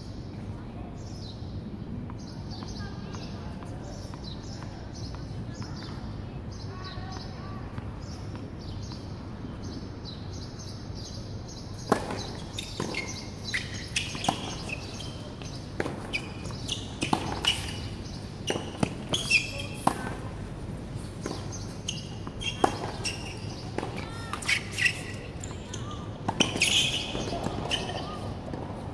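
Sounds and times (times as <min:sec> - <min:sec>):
tennis ball bounces: 0:11.8 - 0:28.8.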